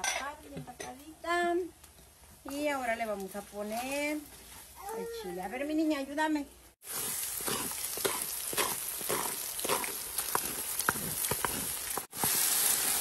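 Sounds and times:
beef sizzling in hot oil: 6.8s - 13.0s
oil crackling and popping: 6.8s - 13.0s.

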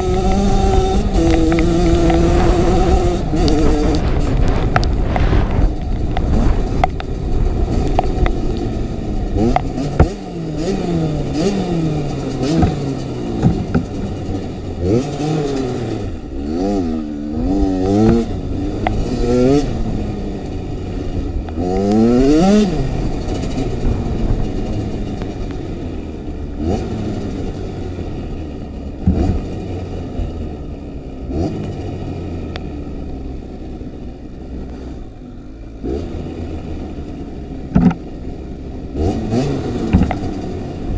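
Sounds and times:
motorcycle engine revving: 0.0s - 40.9s
sharp knocks: 12.5s - 14.0s, 37.7s - 38.0s, 39.9s - 40.3s.

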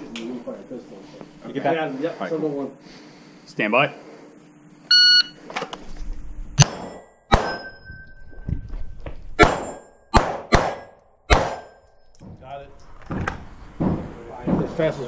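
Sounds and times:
shot timer beep: 4.9s - 5.4s
pistol shots: 6.6s - 7.7s, 9.4s - 11.8s.

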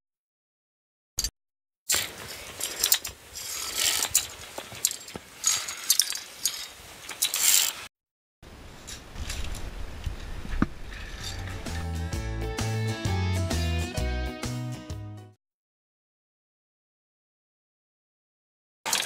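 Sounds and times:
carabiners scraping steel cable: 1.9s - 7.9s, 10.8s - 12.0s
music: 11.4s - 15.4s.

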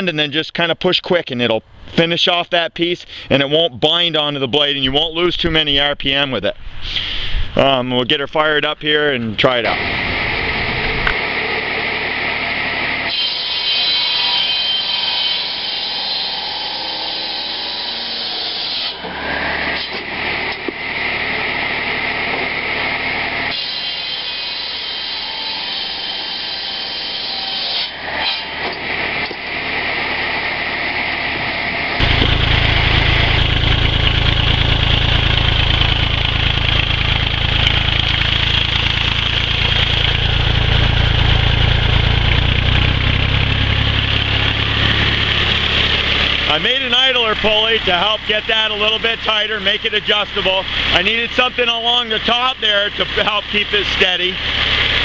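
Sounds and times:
tractor engine running: 4.8s - 12.8s, 32.0s - 55.0s
circular saw cutting log: 9.6s - 55.0s.

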